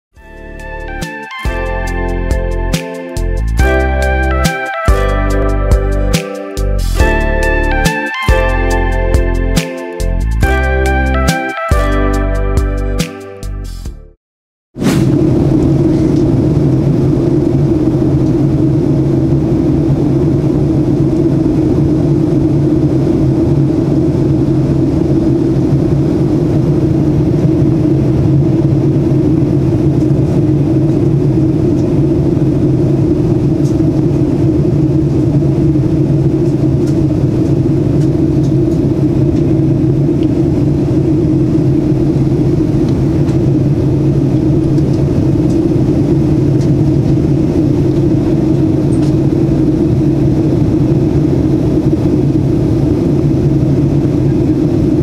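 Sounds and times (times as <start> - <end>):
jet engines droning: 0.6 - 11.5, 14.8 - 55.0
rushing air: 14.8 - 55.0.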